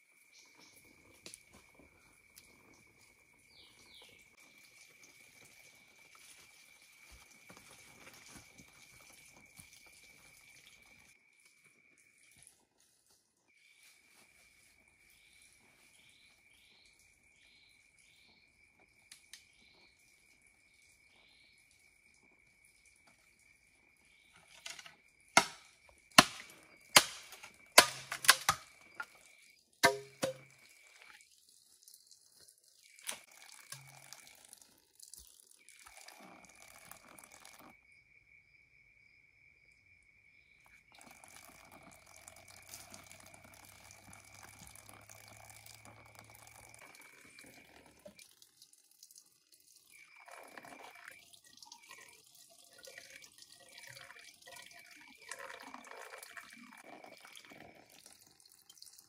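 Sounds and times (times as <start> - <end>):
water running from bamboo pipe: 0.7 - 13.2, 24.4 - 37.7, 40.9 - 59.0
high insect trill: 32.8 - 48.3.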